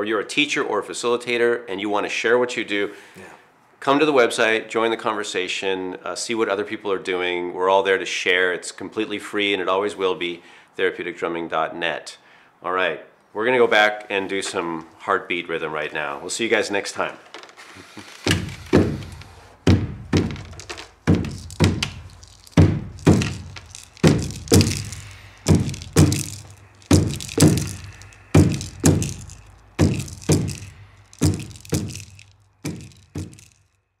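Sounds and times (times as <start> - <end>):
hand drums heartbeat rhythm: 18.4 - 33.5.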